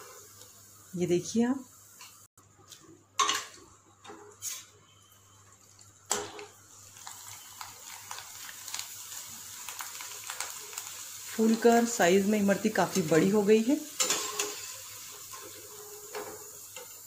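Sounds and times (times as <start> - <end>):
wafers frying in hot oil: 0.0 - 2.3, 4.4 - 17.0.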